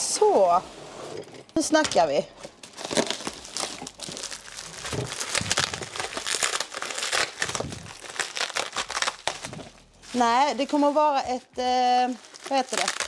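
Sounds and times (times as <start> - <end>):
packaging crinkling: 2.4 - 13.0.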